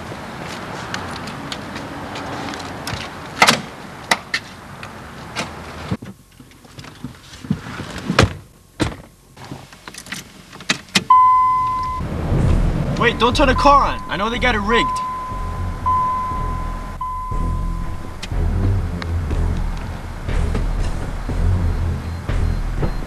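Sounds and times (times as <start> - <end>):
car doors clunking shut: 10.6 - 23.0
high electronic tone: 11.1 - 12.0, 13.0 - 23.0.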